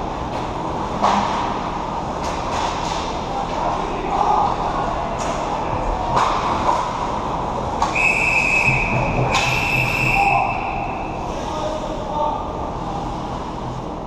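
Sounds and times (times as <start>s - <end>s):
ice rink noise: 0.0s - 14.0s
referee's whistle blasts: 7.9s - 11.1s.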